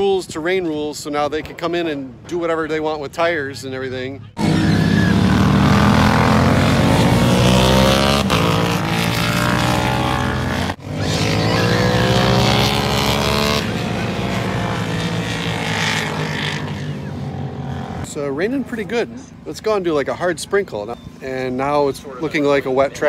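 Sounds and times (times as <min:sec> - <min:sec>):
racing motorcycles passing at high revs: 0:04.4 - 0:19.3.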